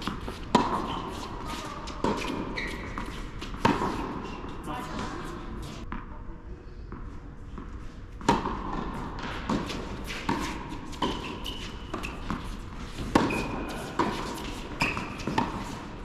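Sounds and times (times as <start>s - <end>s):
tennis ball bounces: 0.0s - 4.4s, 8.2s - 15.8s
racquet hitting ball: 0.0s - 5.2s, 8.2s - 16.0s.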